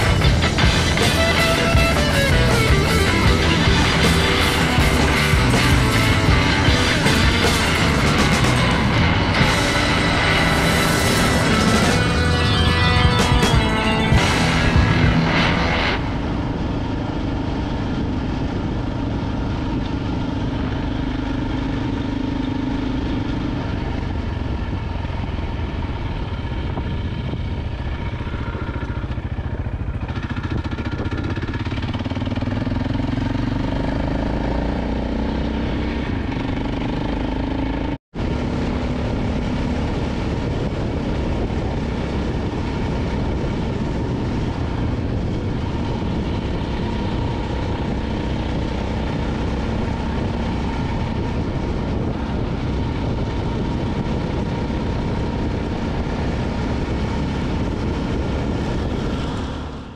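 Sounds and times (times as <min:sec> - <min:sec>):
motorcycle engine: 0:00.0 - 0:59.9
wind noise: 0:00.0 - 0:59.9.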